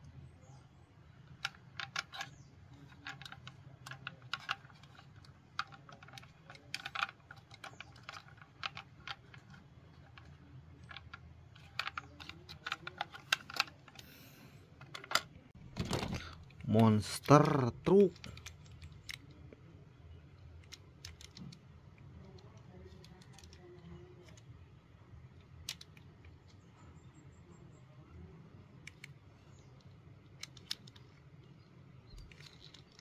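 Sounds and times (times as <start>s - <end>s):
faint low hum: 0.0s - 33.0s
plastic toy vehicles clicking: 1.2s - 19.6s, 20.2s - 24.5s, 25.4s - 26.8s, 28.8s - 33.0s.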